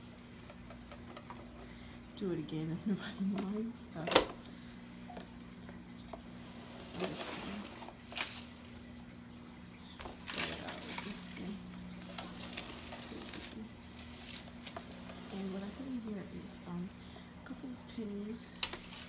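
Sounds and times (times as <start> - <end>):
carpet sweeper motor humming: 0.0 - 9.0, 9.7 - 19.0
rice and grit crackling: 6.1 - 9.0, 9.8 - 16.8, 18.4 - 19.0.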